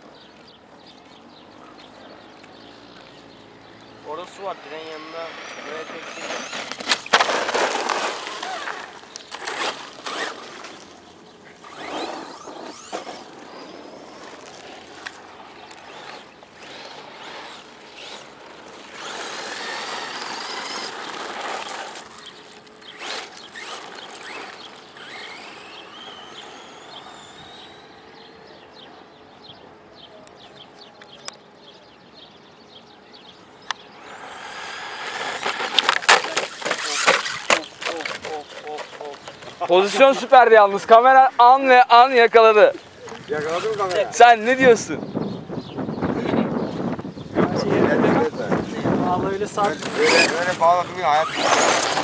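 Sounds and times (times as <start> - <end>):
gravel crunching: 0.0 - 27.8, 33.8 - 41.5, 48.2 - 52.0
electric motor whine: 4.2 - 7.1, 11.6 - 28.5, 33.9 - 37.5, 49.4 - 52.0.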